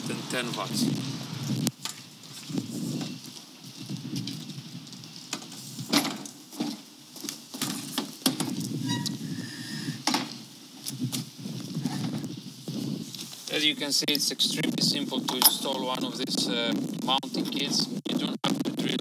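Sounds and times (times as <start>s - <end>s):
steady low rumble: 0.0s - 7.0s, 8.4s - 19.0s
footsteps on metal panel: 5.3s - 9.1s.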